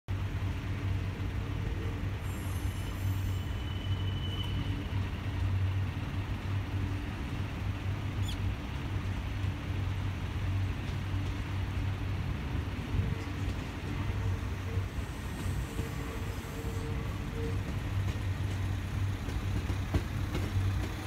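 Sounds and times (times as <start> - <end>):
diesel railcar engine hum: 0.1 - 21.0
brief high squeal: 2.2 - 4.9.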